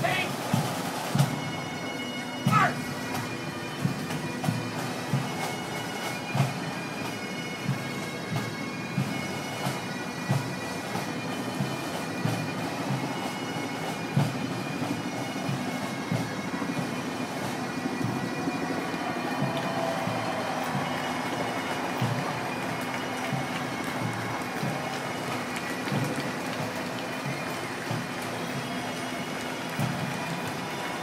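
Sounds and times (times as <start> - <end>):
bagpipes playing a tune: 0.0 - 31.0
drum beat thumping: 13.9 - 28.3.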